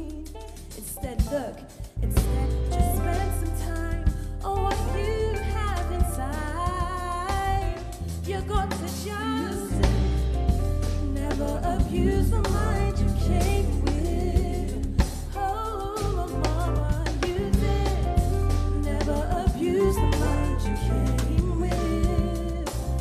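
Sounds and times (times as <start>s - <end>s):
deep bass: 0.0s - 23.0s
live band playing: 0.0s - 23.0s
person singing: 11.0s - 23.0s.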